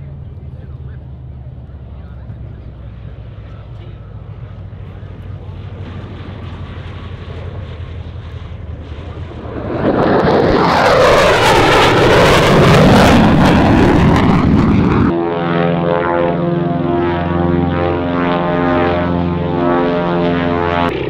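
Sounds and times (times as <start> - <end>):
propeller plane engine drone: 0.0 - 21.0
radial aircraft engine passing: 0.0 - 21.0.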